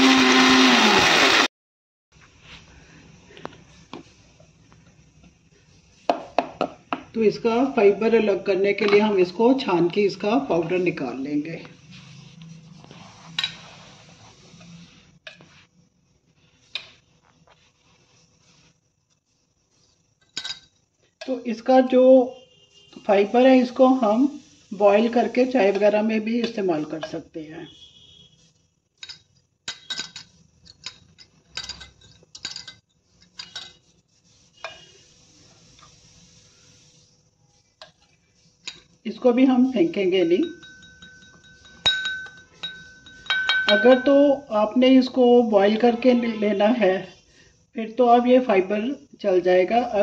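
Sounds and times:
spoon scraping in metal strainer: 12.0s - 15.5s, 33.0s - 37.1s
spoon scraping metal strainer: 12.1s - 15.5s, 23.0s - 27.2s, 29.0s - 46.7s
sharp metal clinks: 40.4s - 44.0s.

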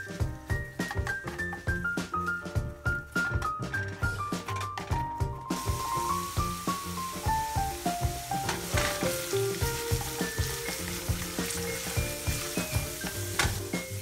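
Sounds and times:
background music with steady beat: 0.0s - 14.0s
food sizzling in a frying pan: 5.5s - 14.0s
chopsticks stirring: 5.6s - 14.0s.

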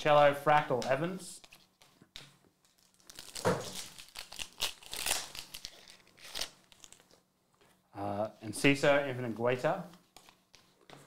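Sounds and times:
card wrappers crinkling: 2.6s - 7.2s
cards being handled: 9.9s - 11.0s.

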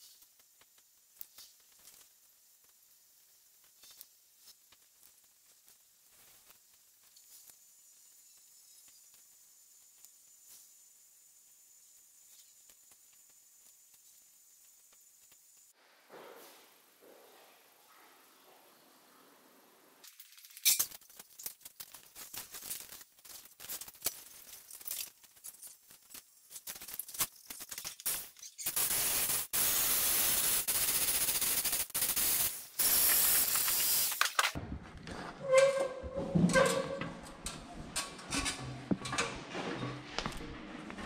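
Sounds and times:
spraying hiss: 0.0s - 16.9s, 26.2s - 34.6s
rustling: 20.0s - 28.7s
stepladder knocks and creaks: 34.6s - 41.0s.

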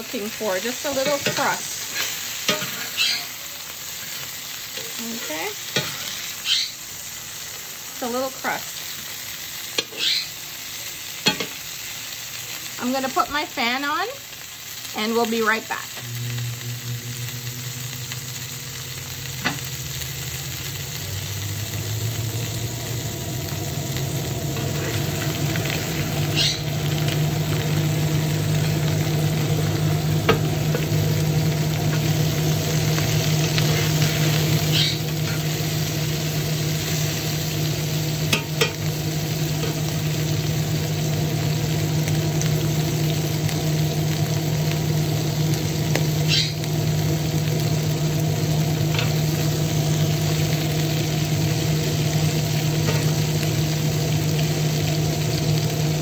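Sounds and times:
fan humming: 0.0s - 6.7s, 12.4s - 56.0s
fish sizzling in hot oil: 0.0s - 56.0s.

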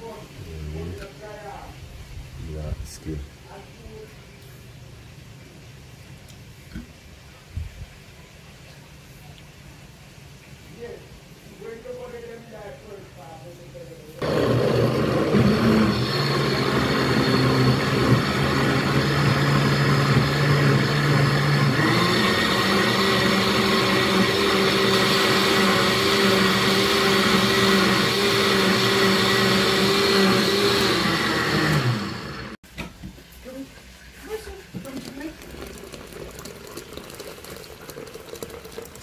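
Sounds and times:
blender motor running: 14.2s - 32.6s.

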